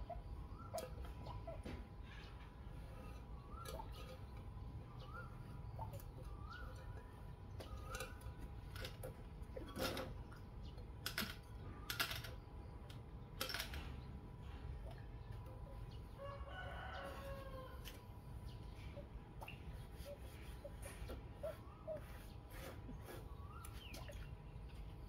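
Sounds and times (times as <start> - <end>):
rooster crowing faintly: 16.2 - 18.2.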